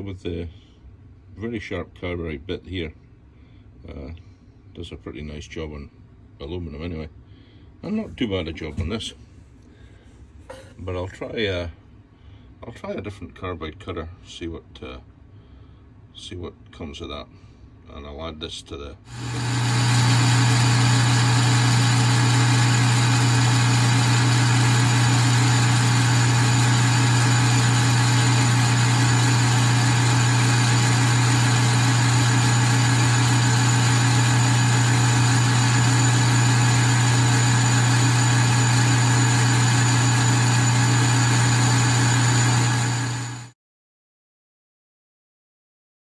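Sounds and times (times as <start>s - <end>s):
metal lathe cutting steel: 19.1s - 43.5s.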